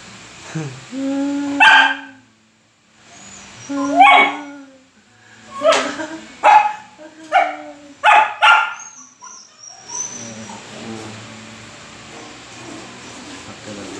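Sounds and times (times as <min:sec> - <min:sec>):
faint steady hum: 0:00.0 - 0:13.9
young dog barking: 0:01.6 - 0:02.2, 0:03.8 - 0:04.5, 0:05.6 - 0:09.4.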